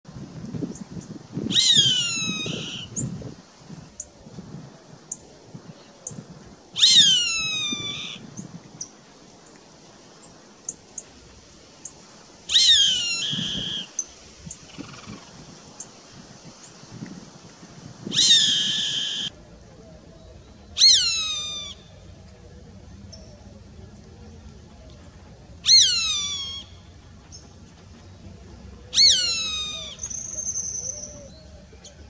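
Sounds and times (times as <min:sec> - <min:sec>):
hawk calling: 0:01.5 - 0:03.0, 0:06.8 - 0:08.2, 0:12.5 - 0:15.3, 0:18.1 - 0:19.3, 0:20.8 - 0:21.9, 0:25.6 - 0:26.9, 0:28.9 - 0:31.4.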